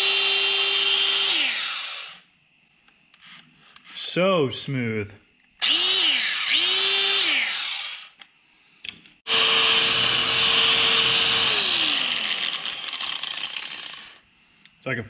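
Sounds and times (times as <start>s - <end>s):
angle grinder whine: 0.0s - 2.3s, 5.6s - 8.3s, 9.2s - 14.2s.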